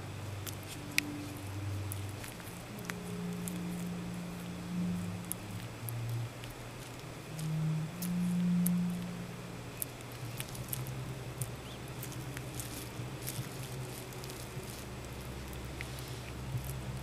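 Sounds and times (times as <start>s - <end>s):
lizard chewing crunchy food: 0.0s - 17.0s
steady low hum: 0.0s - 17.0s.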